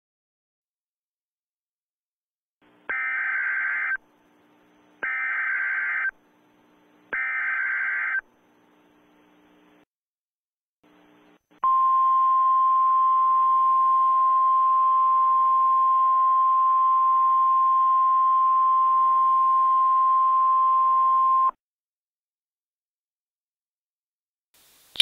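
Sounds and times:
faint hiss: 0:24.6 - 0:25.0.

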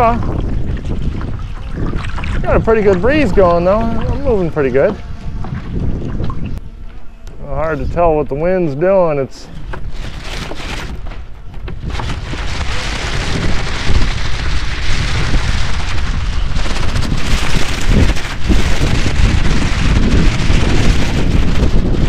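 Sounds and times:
splashing water: 0:00.0 - 0:06.6
wind buffeting microphone: 0:00.0 - 0:22.0.

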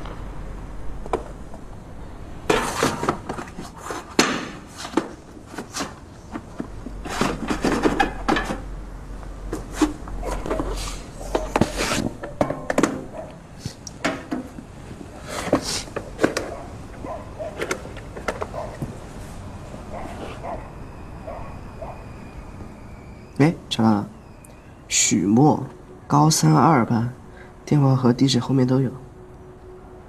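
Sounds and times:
books thudding and knocking: 0:02.5 - 0:08.6
paper rustling and pages leafed: 0:09.5 - 0:12.2.

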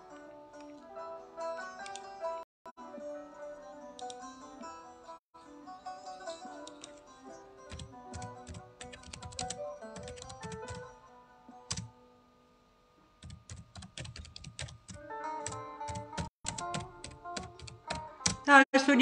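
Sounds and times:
soft plucked-string music: 0:00.0 - 0:08.8, 0:15.0 - 0:18.6
keyboard typing: 0:07.7 - 0:10.9, 0:11.7 - 0:11.9, 0:13.2 - 0:18.5.

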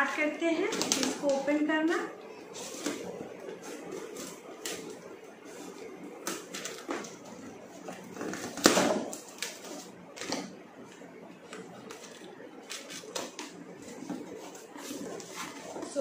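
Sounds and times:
cardboard box rustling: 0:11.7 - 0:16.0.

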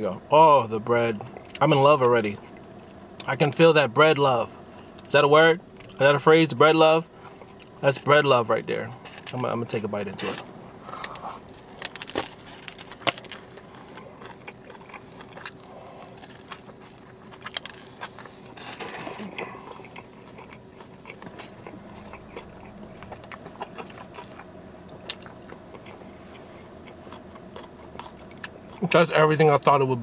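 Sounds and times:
bread crust crunching: 0:11.0 - 0:29.8.

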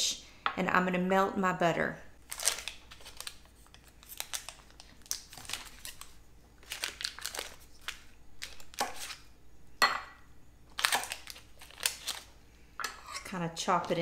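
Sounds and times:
paper wrapper crinkling: 0:02.2 - 0:09.3, 0:10.7 - 0:12.4.

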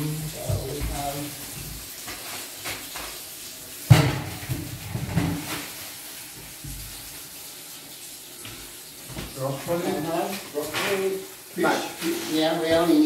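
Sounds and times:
tap water running into sink: 0:00.0 - 0:13.0
sharp knock: 0:03.9 - 0:04.4.

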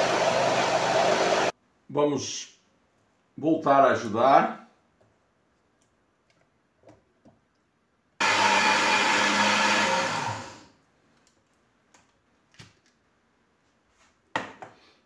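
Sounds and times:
blender motor: 0:00.0 - 0:01.5, 0:08.2 - 0:10.7.

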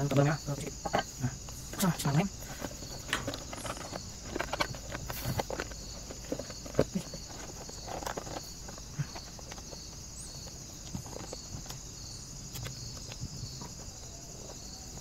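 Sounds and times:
crickets chirping: 0:00.0 - 0:15.0
hands handling plastic housing: 0:00.8 - 0:11.8.

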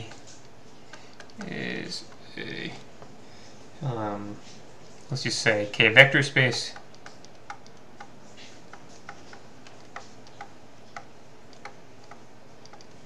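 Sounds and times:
stylus tapping on tablet screen: 0:06.5 - 0:12.9.

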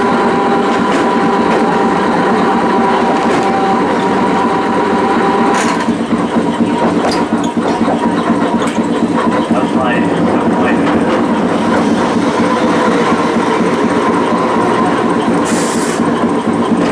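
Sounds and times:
tram motor whine: 0:00.0 - 0:16.9
tram wheels rumbling on rails: 0:00.0 - 0:16.9.

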